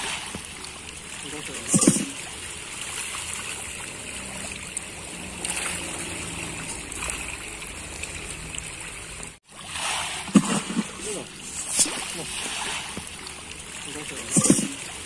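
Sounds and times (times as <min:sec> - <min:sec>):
fish splashing water: 0:00.0 - 0:15.0.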